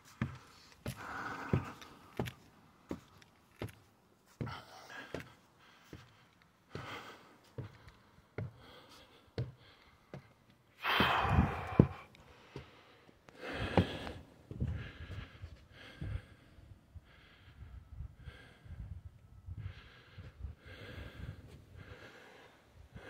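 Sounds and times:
footsteps on wooden stairs: 0.0 - 6.1, 6.7 - 15.1
heavy breathing: 0.2 - 2.4, 4.3 - 23.0.

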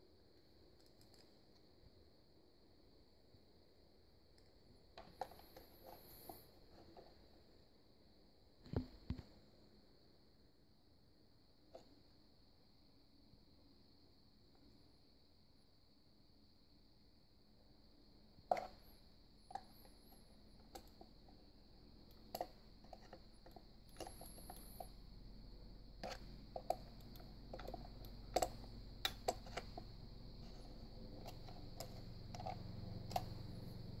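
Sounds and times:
plastic parts clicking and knocking: 18.5 - 18.8, 26.0 - 33.5.

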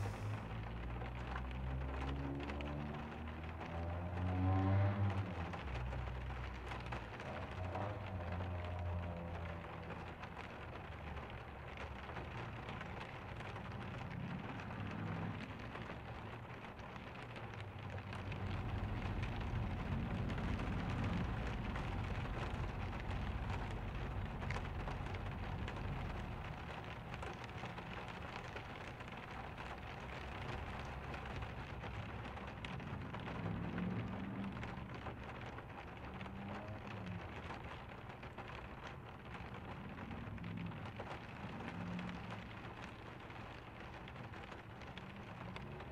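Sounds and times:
steady rain falling: 0.0 - 45.9
low rumble: 5.1 - 44.0.

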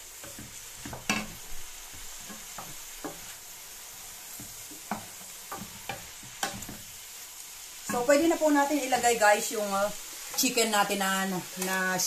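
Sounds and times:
vegetables sizzling in a pan: 0.0 - 12.0
wooden spoon knocking pan: 0.2 - 3.4, 4.4 - 6.9.

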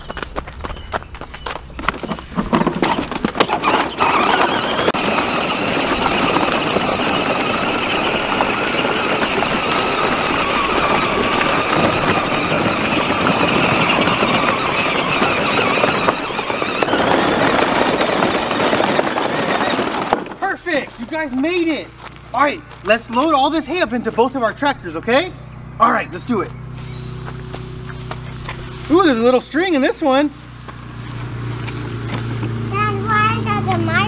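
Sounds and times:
plastic wheels crunching gravel: 1.8 - 24.3, 26.7 - 34.0
electric motor whine: 3.7 - 20.2, 26.6 - 29.4, 30.4 - 32.7.

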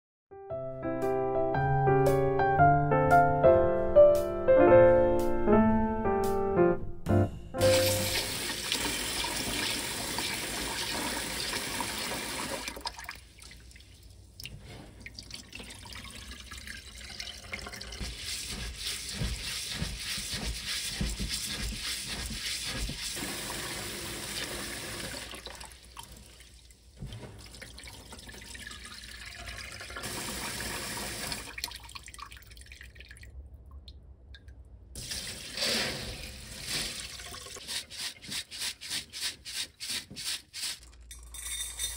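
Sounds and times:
tap water running into bowl: 7.9 - 13.8, 14.4 - 33.2
hands rubbing wet rice: 17.9 - 23.4.

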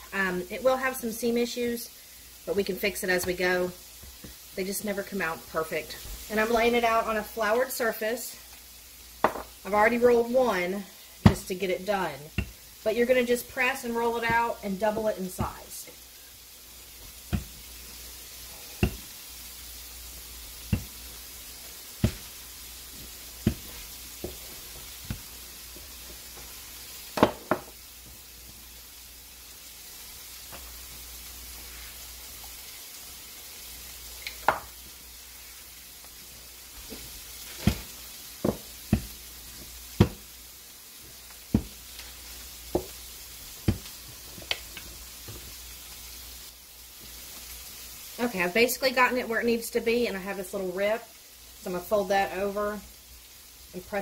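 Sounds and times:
cooking sizzle: 0.0 - 54.0
rolling pin knocking on counter: 9.2 - 9.5.

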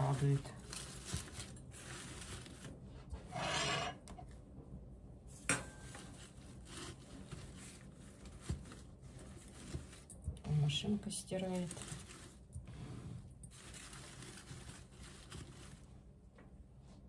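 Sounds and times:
rustling of flower stems and leaves: 0.0 - 3.0, 6.1 - 16.0.

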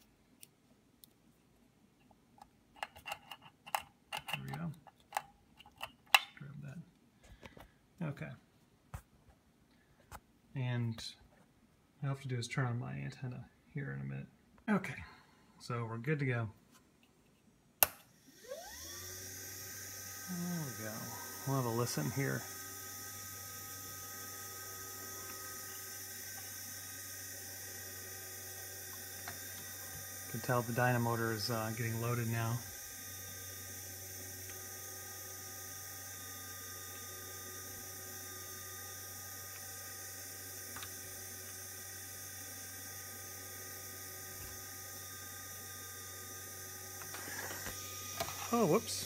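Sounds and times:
dynamotor humming and whining: 18.2 - 49.0.

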